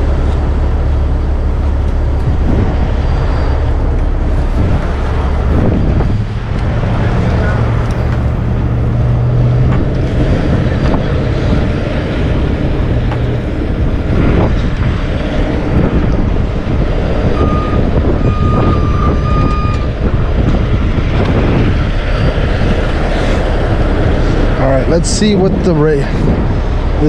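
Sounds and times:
diesel truck engine running: 0:00.0 - 0:27.0
backup alarm beeping: 0:17.4 - 0:20.0.

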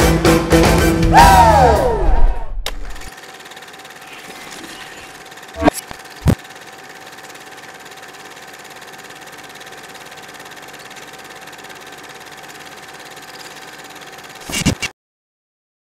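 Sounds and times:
film projector whirring: 0:02.7 - 0:14.9.

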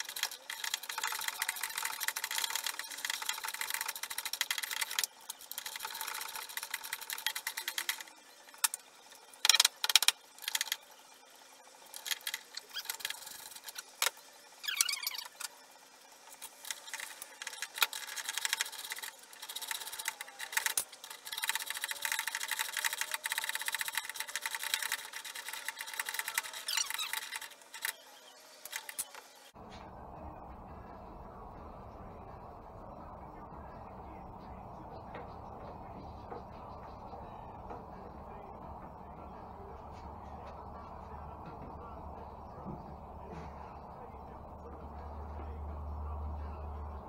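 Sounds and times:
falling squeak: 0:12.6 - 0:13.4, 0:14.6 - 0:15.4, 0:26.2 - 0:29.1
metallic clicking and rattling: 0:16.3 - 0:28.0.

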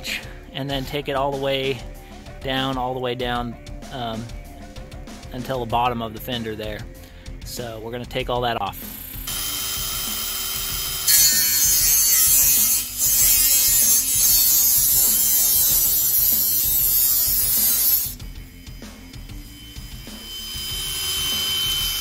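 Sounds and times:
rotary tool grinding metal: 0:09.3 - 0:22.0.

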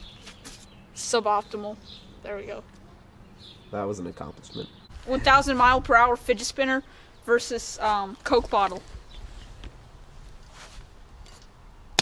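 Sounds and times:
faint rustles: 0:07.8 - 0:11.5.

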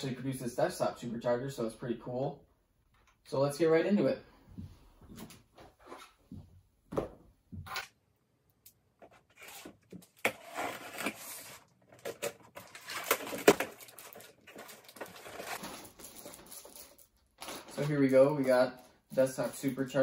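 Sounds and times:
cardboard rustling and scraping: 0:09.0 - 0:16.6
packing tape tearing: 0:09.3 - 0:16.5.

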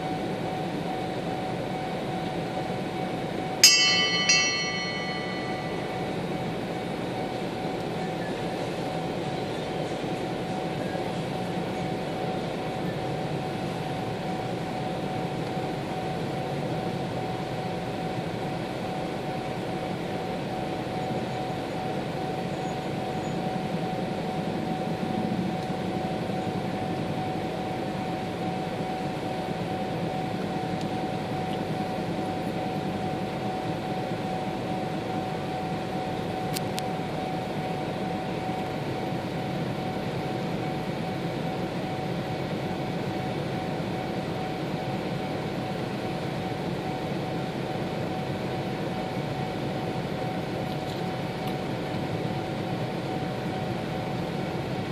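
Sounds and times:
crossing warning signal tone: 0:03.6 - 0:06.8.

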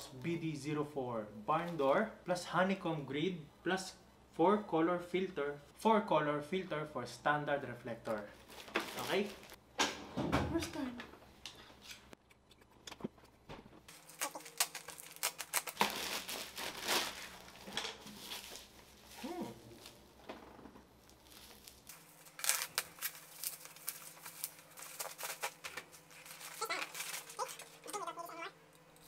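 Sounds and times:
bubble wrap crackles: 0:08.1 - 0:09.6, 0:13.9 - 0:20.3, 0:20.9 - 0:28.2
plastic packaging rustling and tearing: 0:08.1 - 0:09.6, 0:13.9 - 0:20.2, 0:20.9 - 0:28.1.

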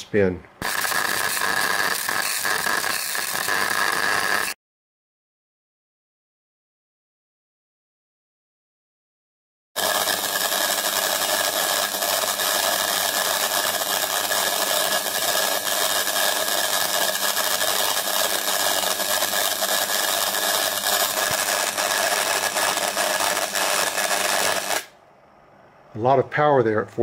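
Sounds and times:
plasma discharge buzzing crackle: 0:00.6 - 0:04.6, 0:09.8 - 0:24.9.

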